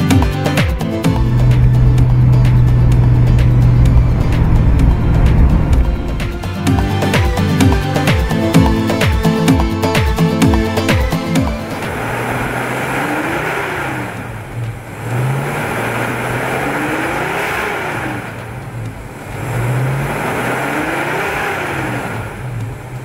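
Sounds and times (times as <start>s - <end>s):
car engine revving: 0.0s - 23.0s.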